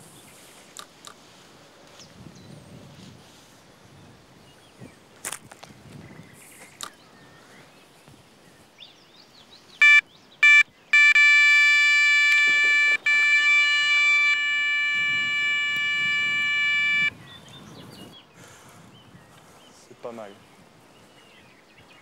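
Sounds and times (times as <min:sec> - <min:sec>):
bite alarm beeps: 0:09.8 - 0:17.1
bite alarm steady tone: 0:09.8 - 0:17.1.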